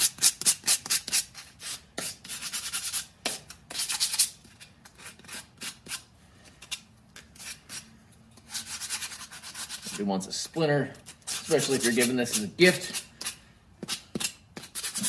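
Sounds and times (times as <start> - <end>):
hand sanding wood: 8.5 - 10.1, 11.1 - 15.0.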